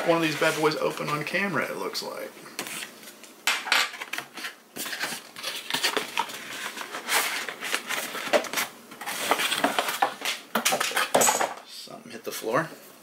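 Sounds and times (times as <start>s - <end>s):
cardboard scraping and tearing: 4.2s - 10.4s.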